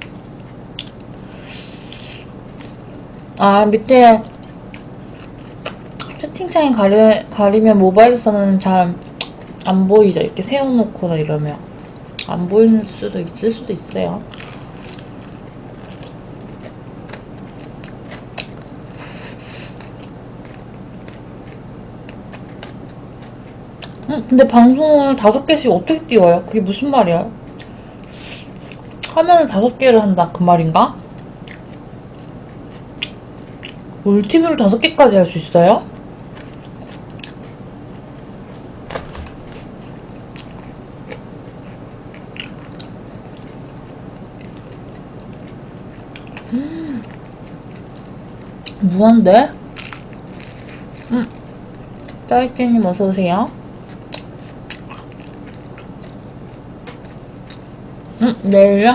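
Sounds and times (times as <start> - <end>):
crisp clicks and wet smacks: 0.0 - 1.2, 9.2 - 9.7, 14.3 - 18.8, 31.2 - 32.3, 33.0 - 33.9, 36.3 - 37.6, 39.8 - 46.5, 54.1 - 56.1
faint steady hum: 0.0 - 58.9
person chewing fried chicken: 4.2 - 6.2, 14.3 - 24.0, 31.1 - 33.9, 36.0 - 38.7, 39.4 - 48.8, 49.8 - 52.2, 53.8 - 57.6.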